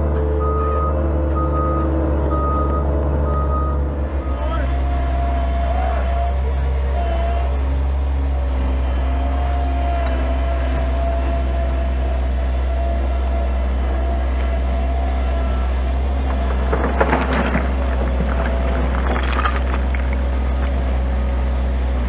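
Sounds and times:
loader engine running: 0.0 - 22.0
stones clattering onto rock pile: 16.2 - 20.9.

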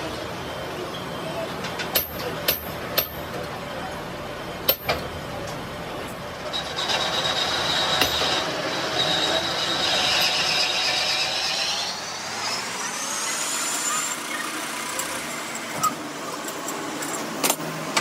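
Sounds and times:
high-pitched grinding squeal: 6.4 - 17.2.

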